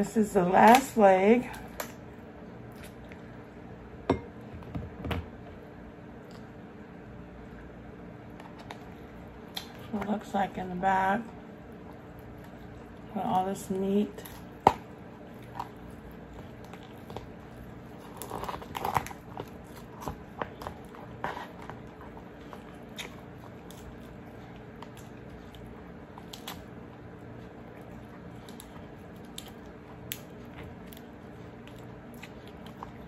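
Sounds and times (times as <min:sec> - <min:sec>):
faint steady hum: 0:00.0 - 0:33.0
crab shell crackling and snapping: 0:14.2 - 0:33.0.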